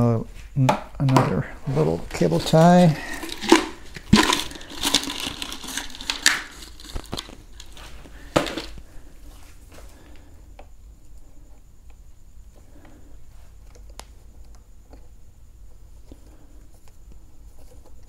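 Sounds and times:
cable tie clicks and rustles: 2.3s - 8.8s.

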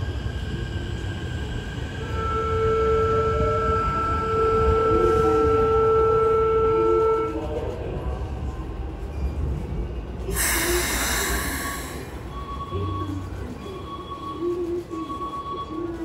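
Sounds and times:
train noise: 0.0s - 16.0s.

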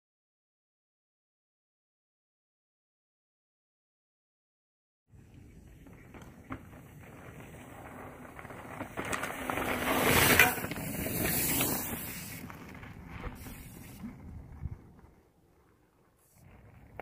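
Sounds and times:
mountain bike rolling on dirt trail: 5.1s - 17.0s.

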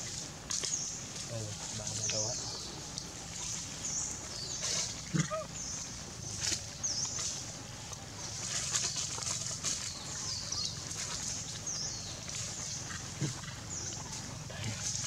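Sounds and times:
rustling in dry leaves: 0.0s - 15.0s
steady low hum: 0.0s - 15.0s.

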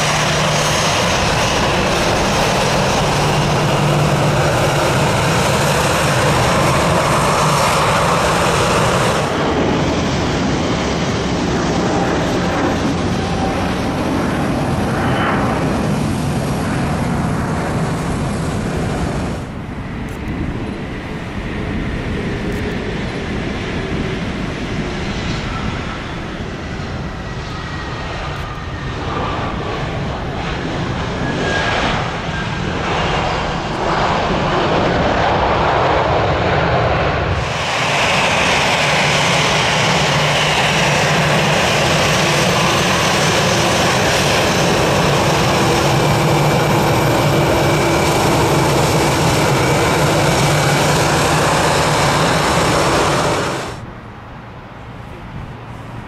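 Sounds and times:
jet engine whine at taxi power: 0.0s - 56.0s
jet engines rushing on landing: 0.0s - 56.0s.

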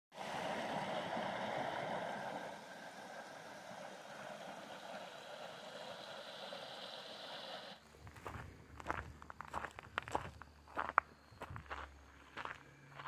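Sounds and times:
creek rushing over rocks: 0.1s - 7.8s.

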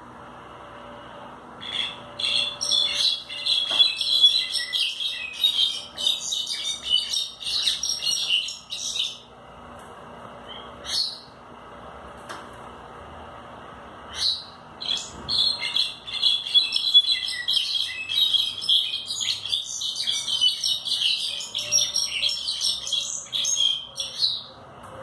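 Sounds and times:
bird singing high notes: 1.6s - 9.2s, 14.2s - 24.5s.

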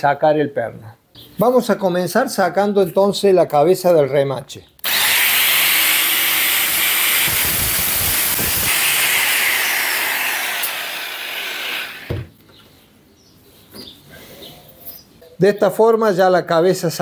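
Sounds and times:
angle grinder grinding metal: 4.8s - 12.3s
knock: 12.1s - 12.3s.

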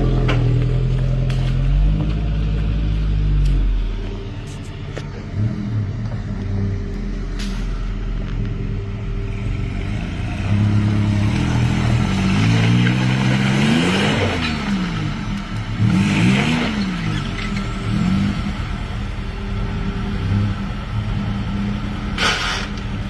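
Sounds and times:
engine revving hard: 10.3s - 18.6s.

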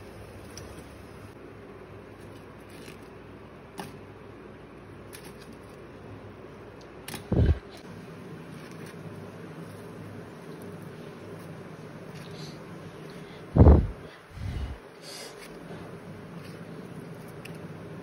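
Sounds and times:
low background hum: 0.0s - 18.0s.

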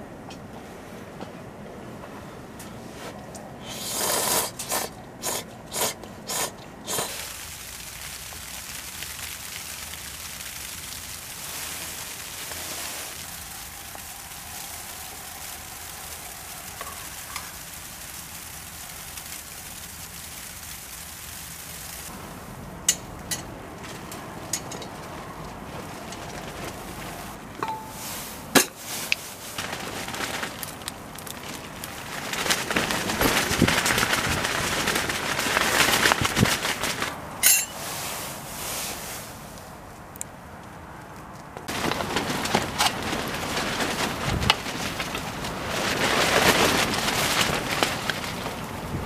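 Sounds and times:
pot simmering with sizzling hiss: 3.6s - 29.6s.

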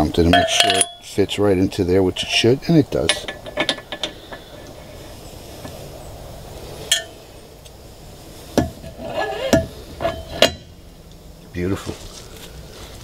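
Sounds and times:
metal propeller clinking on shaft: 0.2s - 1.2s
metallic knocks with ring: 0.3s - 1.1s, 9.5s - 10.7s.

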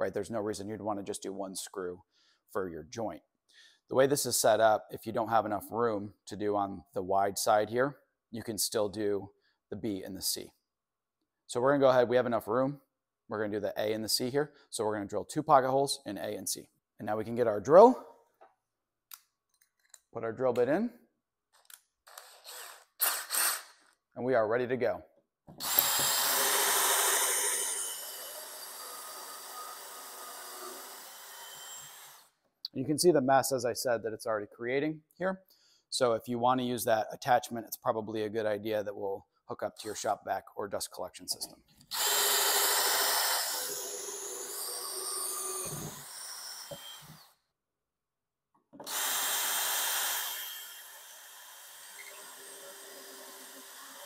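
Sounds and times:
drill whirring into wood: 22.1s - 24.0s, 25.6s - 32.4s, 41.9s - 47.4s, 48.8s - 54.0s.

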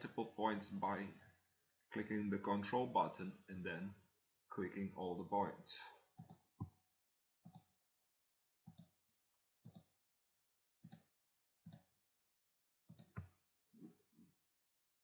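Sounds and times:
computer mouse clicks: 6.2s - 6.7s, 7.4s - 7.7s, 8.6s - 9.0s, 9.6s - 9.9s, 10.8s - 11.9s, 12.9s - 13.3s.

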